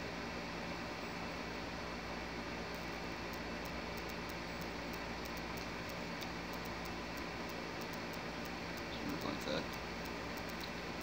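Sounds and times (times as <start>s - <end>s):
background hiss and hum: 0.0s - 11.0s
faint light ticking: 2.8s - 11.0s.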